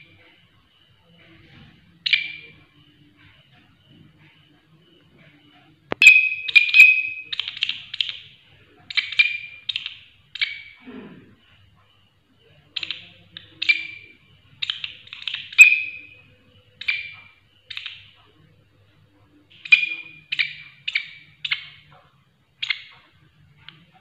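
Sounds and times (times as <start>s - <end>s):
katydid rasping chirps: 19.5s - 21.8s.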